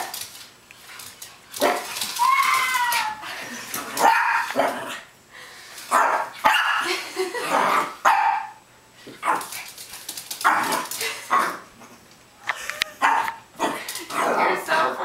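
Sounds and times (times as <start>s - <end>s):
puppy barking: 5.9s - 6.9s, 8.0s - 8.6s, 13.0s - 13.4s.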